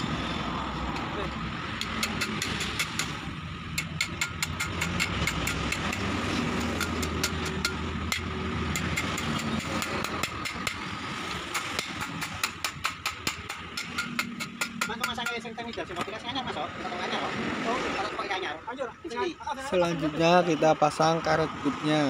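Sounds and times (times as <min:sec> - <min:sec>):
hammer tapping steel: 0:01.8 - 0:10.9, 0:11.5 - 0:15.5.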